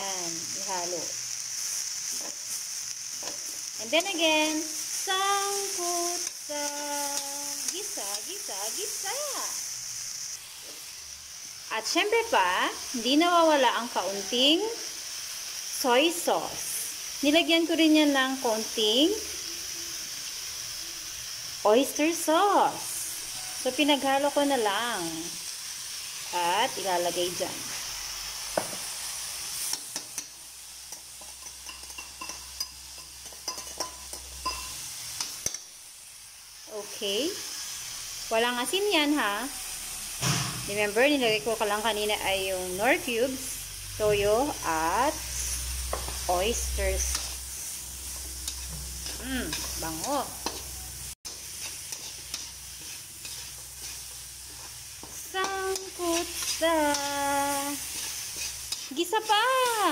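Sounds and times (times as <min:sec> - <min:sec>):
food sizzling: 0:00.0 - 0:59.9
spatula scraping a wok: 0:27.6 - 0:36.6, 0:44.3 - 0:59.9
metal spatula clinking in wok: 0:29.8 - 0:35.7.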